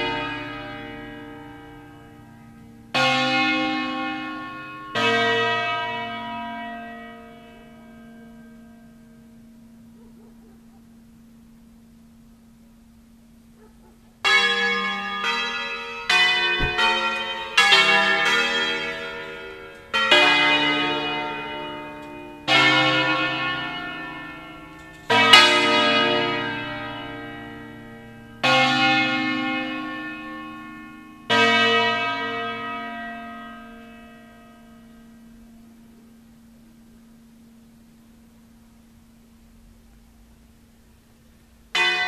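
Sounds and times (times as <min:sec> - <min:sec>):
church bells ringing: 0:00.0 - 0:42.0.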